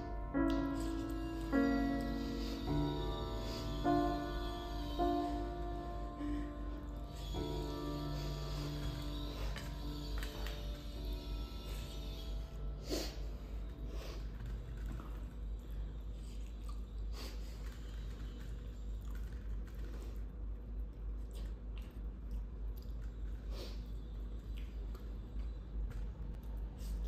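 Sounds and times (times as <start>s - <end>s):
steady low hum: 0.0s - 27.0s
person chewing food: 14.2s - 27.0s.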